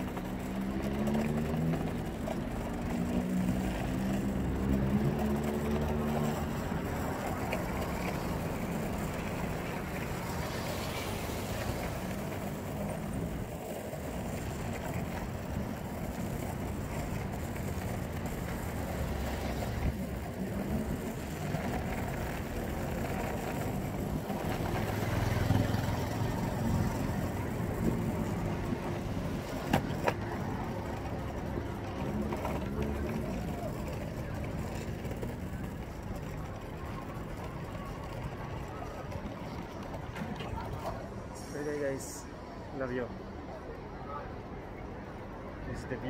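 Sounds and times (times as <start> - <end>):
skateboard wheels rolling: 0.0 - 46.0.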